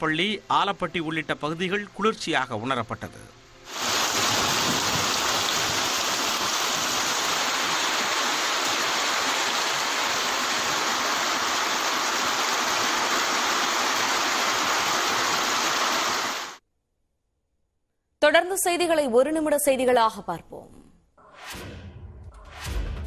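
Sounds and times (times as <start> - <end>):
heavy rain on wet street: 3.7 - 16.6.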